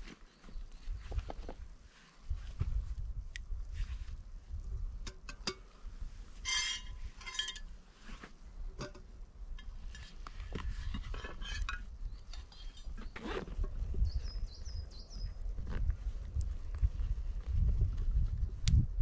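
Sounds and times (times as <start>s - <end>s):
metal cookware clinking and knocking: 6.5s - 7.6s
metal ringing clatters: 6.5s - 7.7s.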